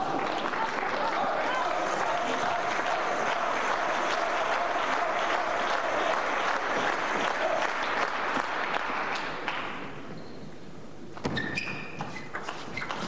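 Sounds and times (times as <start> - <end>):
crowd applauding: 0.0 - 9.9.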